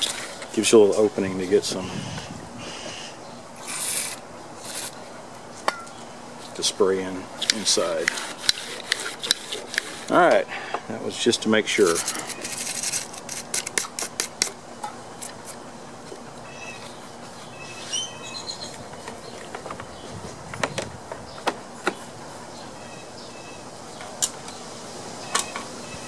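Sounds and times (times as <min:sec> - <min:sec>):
bird chirping: 0:16.4 - 0:24.6.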